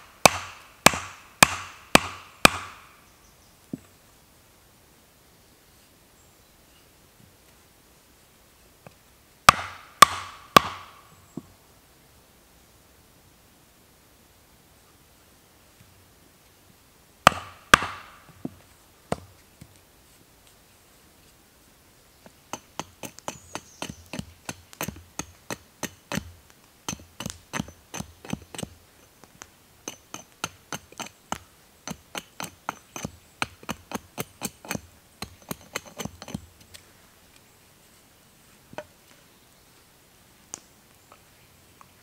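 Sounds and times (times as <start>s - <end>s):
hatchet chopping wood: 0.2s - 2.9s, 9.5s - 11.0s, 17.2s - 19.3s, 22.5s - 28.8s, 29.9s - 36.5s.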